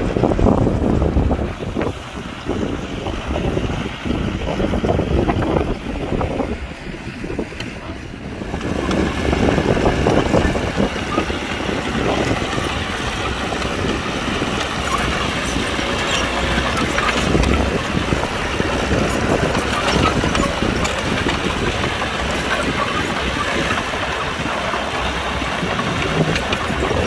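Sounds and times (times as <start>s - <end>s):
heavy diesel machinery rumbling: 0.0s - 27.0s.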